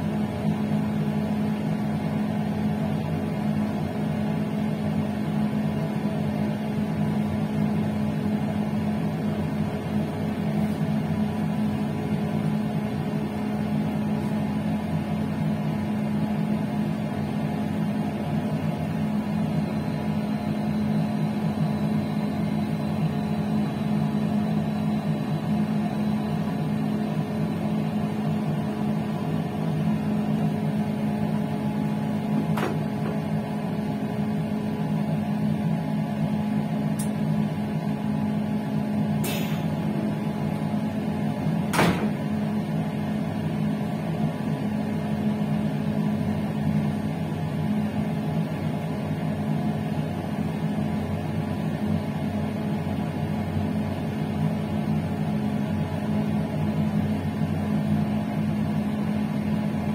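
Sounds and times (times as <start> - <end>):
electric train hum: 0.0 - 46.9.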